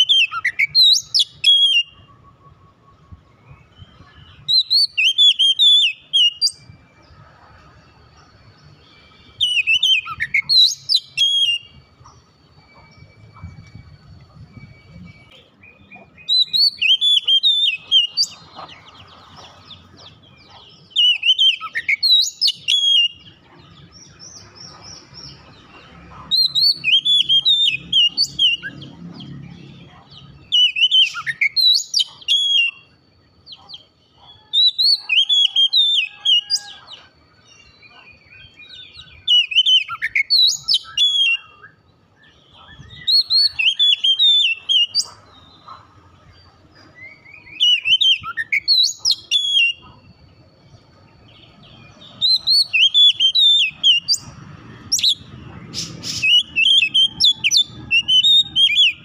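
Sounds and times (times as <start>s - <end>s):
bird singing whistled phrases: 0.0s - 6.7s, 8.9s - 18.5s, 20.3s - 24.5s, 26.3s - 29.4s, 30.1s - 33.0s, 37.9s - 45.8s, 47.0s - 50.0s, 51.5s - 54.3s, 55.0s - 59.0s.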